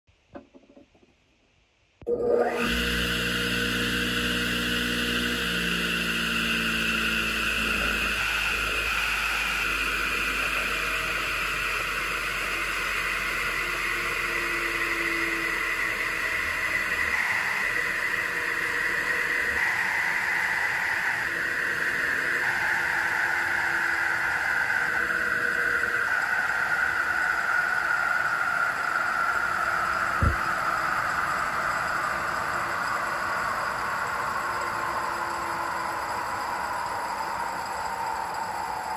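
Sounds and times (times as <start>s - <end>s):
low motor hum: 2.1s - 27.6s, 30.1s - 30.7s
table saw blade whirring: 2.1s - 38.9s.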